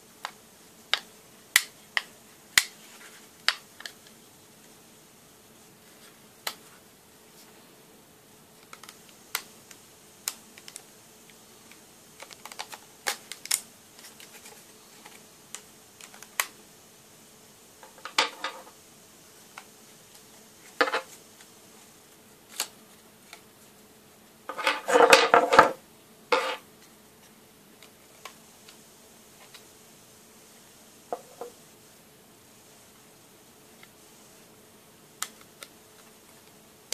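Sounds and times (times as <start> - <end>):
plastic clicks and snaps: 8.6 - 14.2
plastic cracking snaps: 8.6 - 14.4, 15.0 - 16.6, 22.5 - 23.4.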